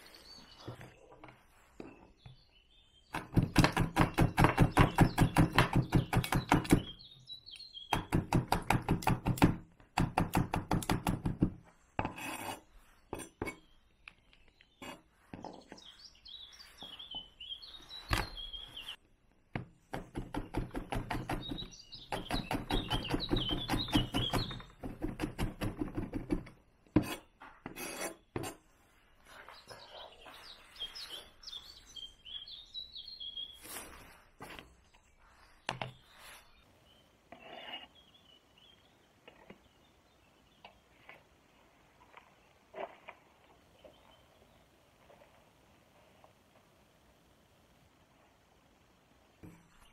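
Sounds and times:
birds chirping: 0:00.0 - 0:08.2, 0:13.4 - 0:19.1, 0:21.0 - 0:24.9, 0:29.0 - 0:45.2.

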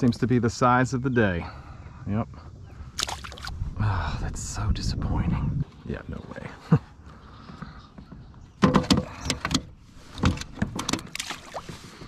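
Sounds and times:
fish splashing into water: 0:03.0 - 0:03.6, 0:11.1 - 0:11.7.

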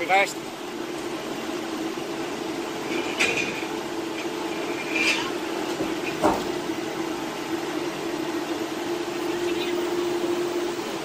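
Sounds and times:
hydraulic crusher humming: 0:00.0 - 0:11.0
metal squeaks and creaks: 0:02.8 - 0:06.4.

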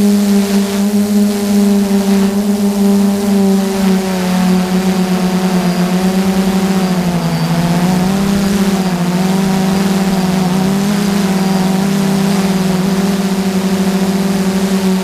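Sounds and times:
drone propellers humming: 0:00.0 - 0:15.0.

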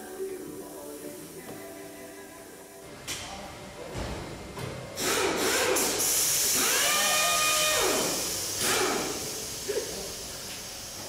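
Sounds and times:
air tool motor whine: 0:05.0 - 0:09.6
air hissing: 0:05.0 - 0:11.0.

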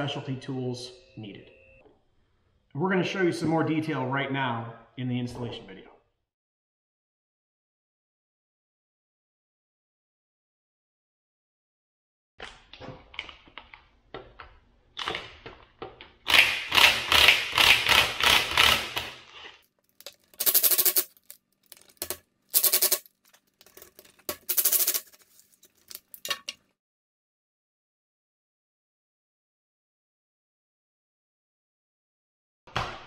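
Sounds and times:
tools clicking and knocking: 0:19.9 - 0:26.6.

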